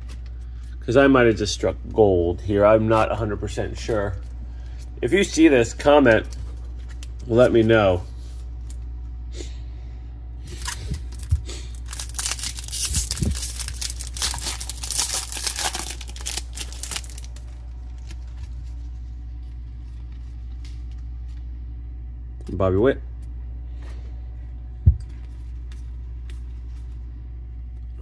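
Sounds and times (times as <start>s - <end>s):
wrapper being torn open: 10.5s - 18.7s.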